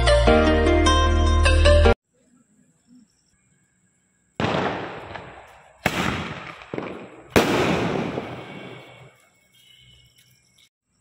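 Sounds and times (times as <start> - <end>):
firework bangs: 4.4 - 9.2.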